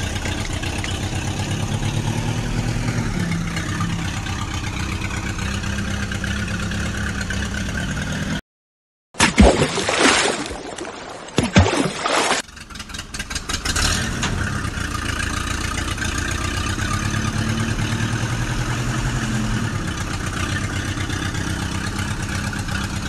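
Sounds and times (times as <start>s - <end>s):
tractor engine chugging: 0.0s - 8.4s, 12.5s - 23.0s.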